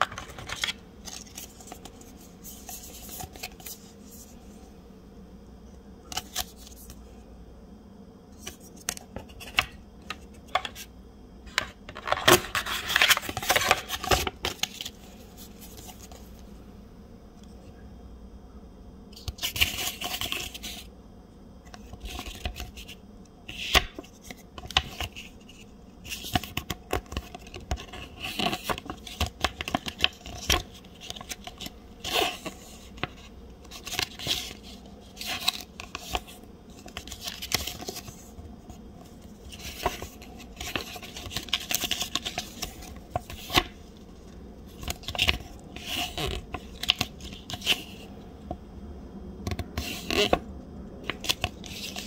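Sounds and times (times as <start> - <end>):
packaging rustling and scraping: 0.0 - 4.4, 11.4 - 16.5, 21.7 - 48.2, 49.7 - 52.0.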